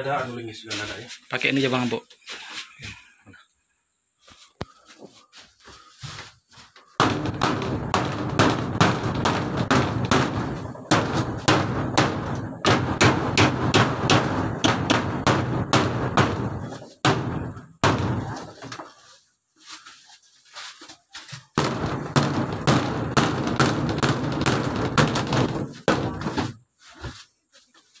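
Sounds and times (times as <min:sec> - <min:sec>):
thin wall booming: 0:07.0 - 0:18.7, 0:21.6 - 0:26.6
hammer striking nails: 0:07.0 - 0:18.8, 0:21.6 - 0:26.6.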